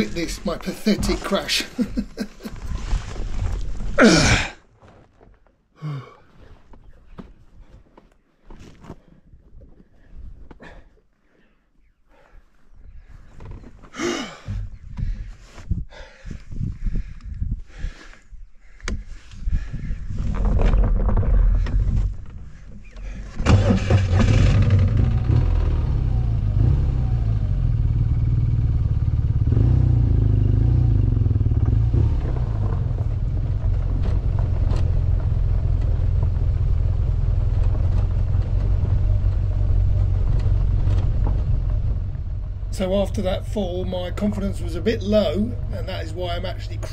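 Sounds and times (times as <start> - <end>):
motorcycle engine starting and running: 20.3 - 46.9.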